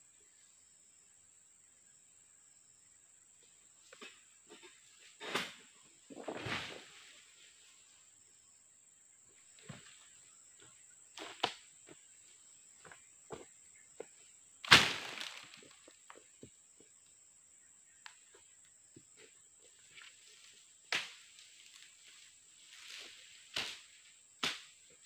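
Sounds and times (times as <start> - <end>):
heavy thud on ground: 14.6 - 15.5.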